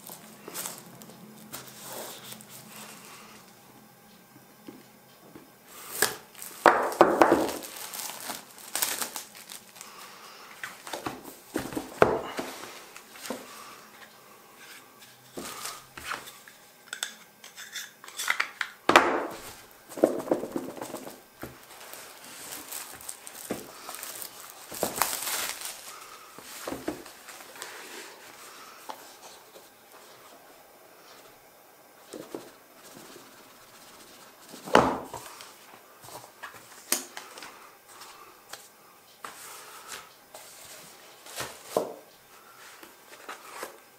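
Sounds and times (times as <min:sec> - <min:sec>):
plastic wrap crinkling and tearing: 0:05.9 - 0:11.1, 0:20.4 - 0:27.7.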